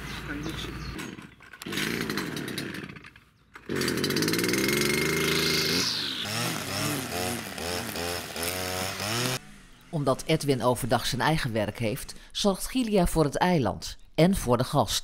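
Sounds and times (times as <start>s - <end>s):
brush cutter revving: 0.4s - 12.3s
string head cutting grass: 3.6s - 10.6s.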